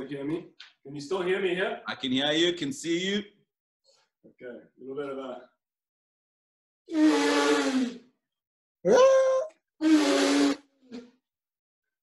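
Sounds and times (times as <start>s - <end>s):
party blower buzzy blasts: 9.8s - 10.7s.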